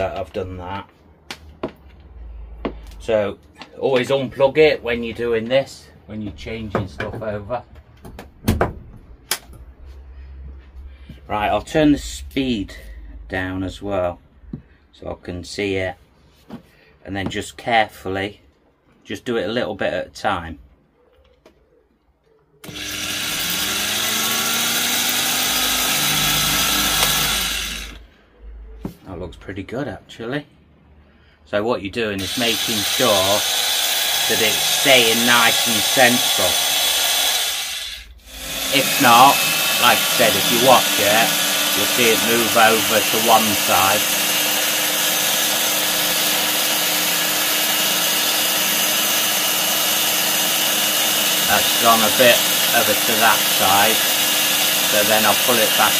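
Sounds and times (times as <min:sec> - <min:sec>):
belt file sander running: 0:22.6 - 0:28.0, 0:32.2 - 0:55.9.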